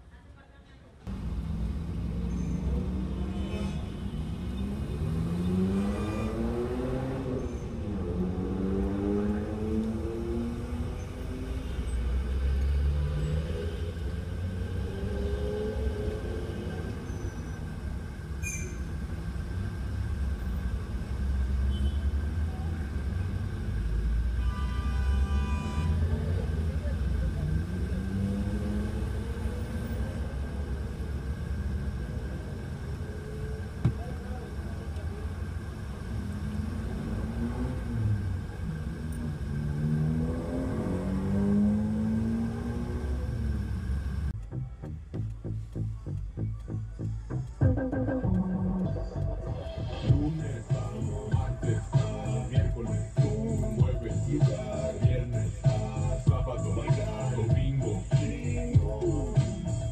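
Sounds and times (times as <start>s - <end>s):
vehicle engines pulling away: 1.1s - 24.4s, 25.3s - 44.4s, 47.7s - 59.9s
large vehicle rumbling past: 25.2s - 44.4s.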